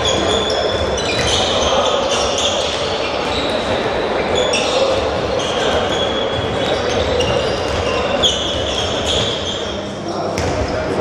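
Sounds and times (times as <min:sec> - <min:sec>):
balls bouncing on floor: 0:00.0 - 0:01.6, 0:06.4 - 0:09.4, 0:10.4 - 0:10.7
sports shoes squeaking: 0:00.0 - 0:10.5.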